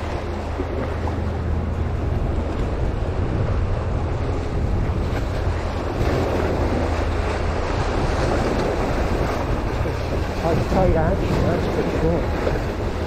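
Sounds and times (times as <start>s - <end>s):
wind buffeting microphone: 0.0s - 13.0s
waves breaking against rocks: 4.8s - 13.0s.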